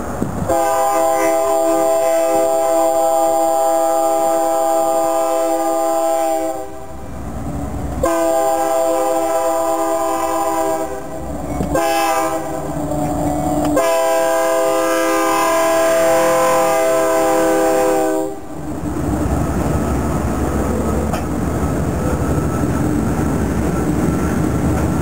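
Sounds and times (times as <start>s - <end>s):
locomotive low rumble: 0.0s - 25.0s
locomotive air horn blasts: 0.4s - 6.9s, 8.0s - 11.1s, 11.7s - 12.6s, 13.7s - 18.5s.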